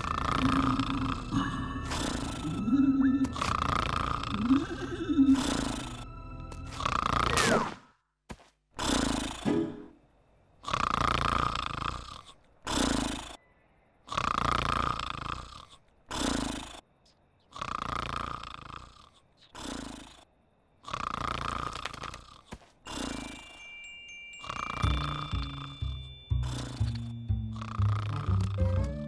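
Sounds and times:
sheep snoring: 0.0s - 7.6s, 8.8s - 9.5s, 10.5s - 13.4s, 14.0s - 23.6s, 24.4s - 28.8s.

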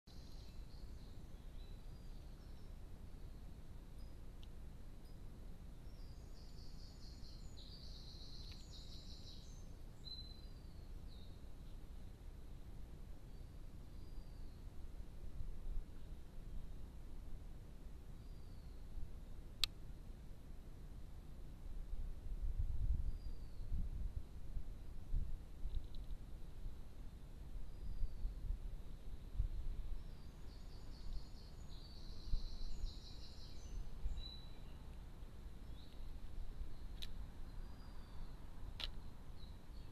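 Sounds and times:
songbird trilling: 5.8s - 11.4s.

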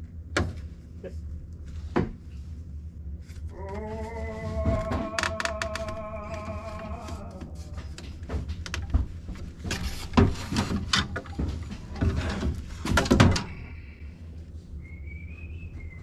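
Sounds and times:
plastic pipes knocking: 4.6s - 13.6s.

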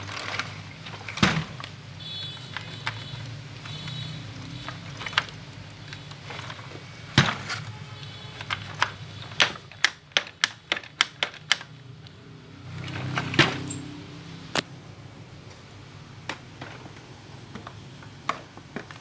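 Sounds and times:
plastic clicks and knocks: 8.4s - 11.8s.

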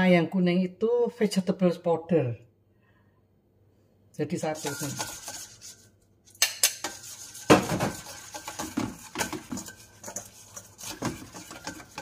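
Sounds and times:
metal spoon clinking in steel bowl: 4.4s - 5.6s, 6.3s - 12.0s.

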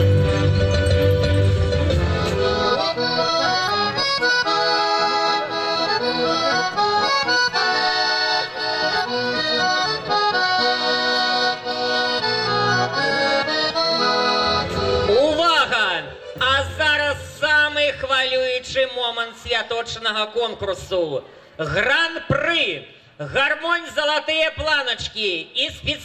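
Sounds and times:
button accordion playing: 0.0s - 17.8s.

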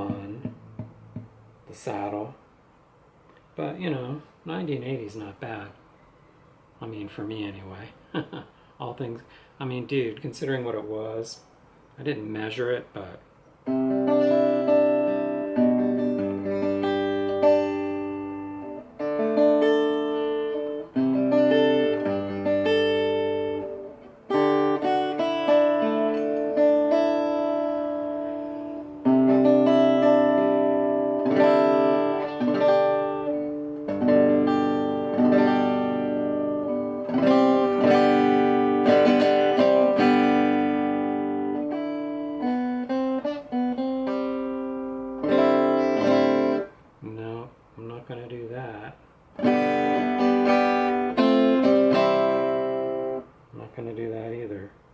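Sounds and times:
acoustic guitar picked chords: 0.0s - 2.3s, 13.6s - 46.8s, 49.3s - 53.4s.

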